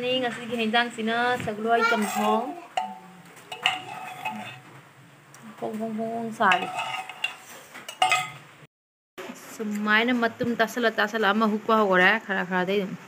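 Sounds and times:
metal spoon scraping a pot: 0:01.8 - 0:04.8, 0:06.3 - 0:08.5.

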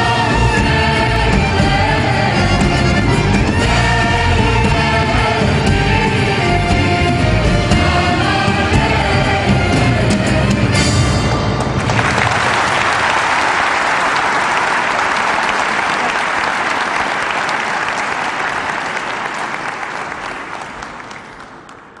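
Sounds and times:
music: 0:00.0 - 0:12.5
audience applauding: 0:11.5 - 0:22.0.

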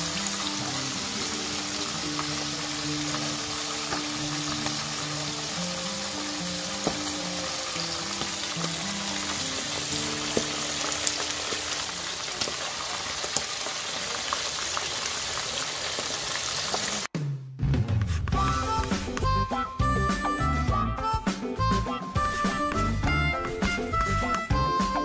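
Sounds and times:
fish sizzling in hot oil: 0:00.0 - 0:17.1.

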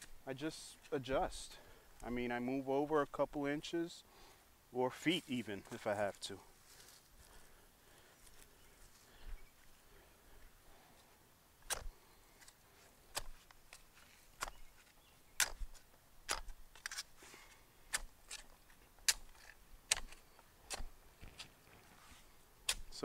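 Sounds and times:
spade stabbing into soil: 0:11.6 - 0:17.2, 0:17.9 - 0:21.5, 0:22.6 - 0:23.0.

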